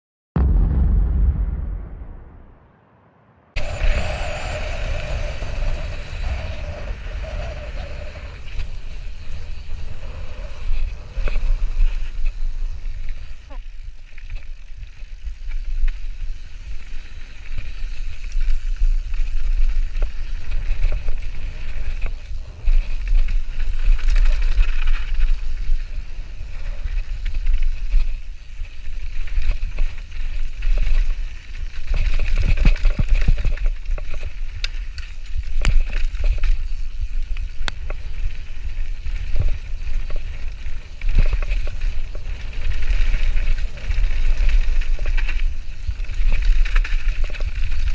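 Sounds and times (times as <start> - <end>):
wind buffeting microphone: 3.6 - 13.1
tyres on loose gravel: 3.6 - 47.9.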